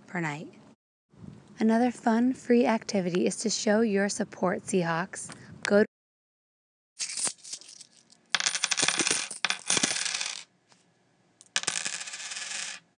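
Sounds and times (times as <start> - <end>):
coins clinking and jingling: 7.0 - 10.4, 11.5 - 12.8.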